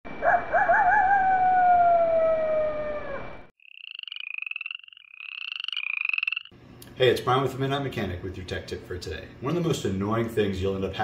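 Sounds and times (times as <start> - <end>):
wolf howl: 0.2 - 3.5
rapid pulsed trills: 3.6 - 6.6.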